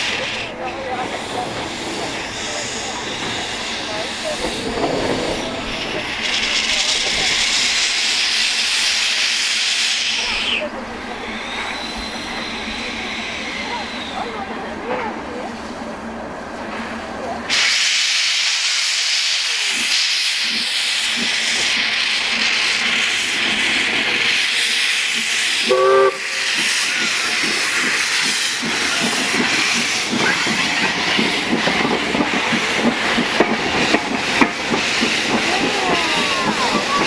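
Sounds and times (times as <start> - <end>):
steam locomotive hissing: 0.0 - 37.0
locomotive rhythmic beats: 23.2 - 37.0
steam whistle blast: 25.6 - 26.5.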